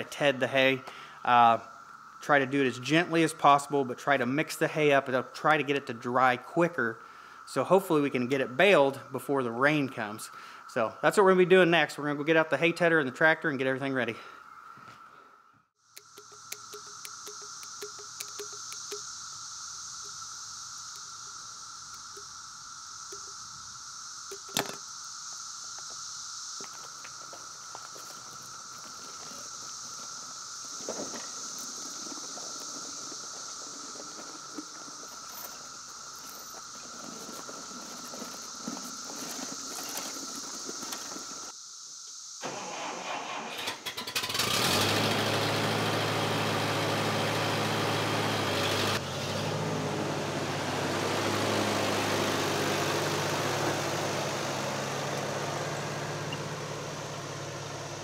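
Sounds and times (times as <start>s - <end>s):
tractor engine cranking and idling: 16.0s - 19.0s, 26.6s - 41.5s, 42.4s - 58.0s.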